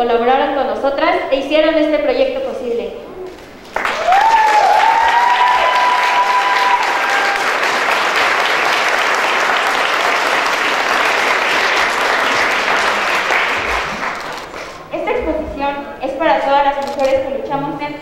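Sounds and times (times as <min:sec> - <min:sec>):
crowd applauding: 0:03.6 - 0:14.9.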